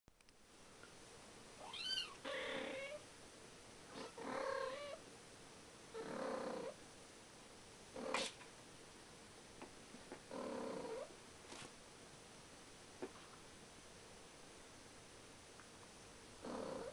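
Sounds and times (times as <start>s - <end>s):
cat meowing: 1.6s - 3.0s.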